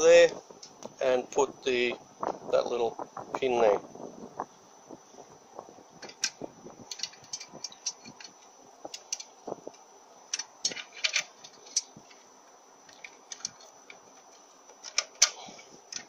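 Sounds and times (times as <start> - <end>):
small metal parts clicking: 6.0 - 9.4, 10.3 - 12.2, 12.8 - 16.0.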